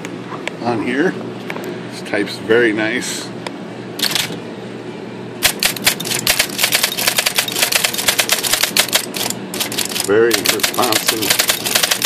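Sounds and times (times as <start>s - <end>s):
low steady hum: 0.0s - 12.0s
electric typewriter typing: 4.0s - 4.3s, 5.4s - 12.0s.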